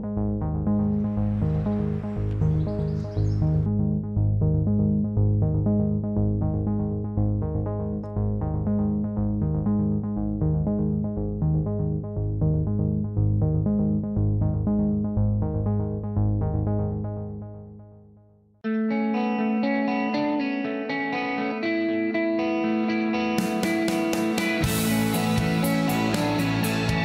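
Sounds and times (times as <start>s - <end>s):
synthesizer repeated notes: 0.0s - 18.1s, 23.8s - 27.0s
low synth bass: 0.0s - 18.2s, 24.6s - 27.0s.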